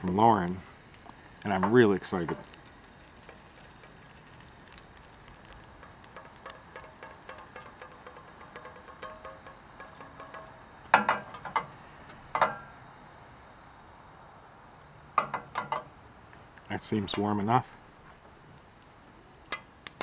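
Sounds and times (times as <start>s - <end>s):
fat crackling in a pan: 0.0s - 11.7s, 19.5s - 20.0s.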